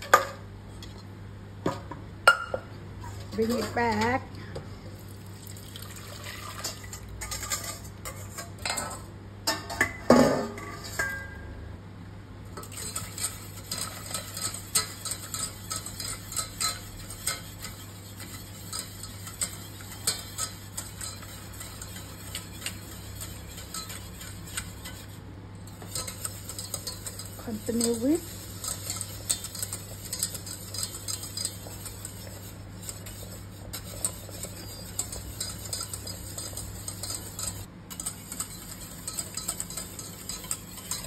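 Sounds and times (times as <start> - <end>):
whisk scraping a saucepan: 3.0 - 4.2, 6.1 - 9.1, 12.6 - 41.0.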